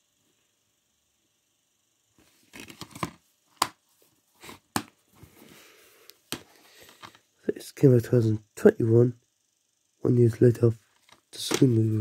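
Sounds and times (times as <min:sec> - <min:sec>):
plastic cases rustling and scraping: 0:02.2 - 0:03.2, 0:06.3 - 0:07.2.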